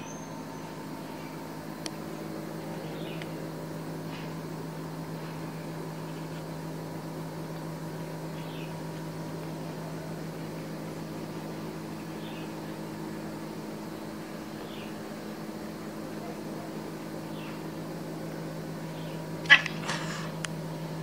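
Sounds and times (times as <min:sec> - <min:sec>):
low mechanical hum: 0:00.0 - 0:21.0.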